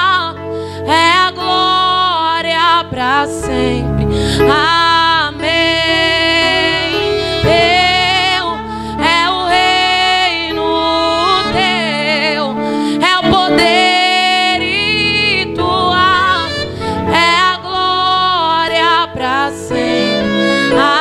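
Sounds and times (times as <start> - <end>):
sustained instrumental backing: 0.0 - 21.0
woman singing: 0.0 - 21.0.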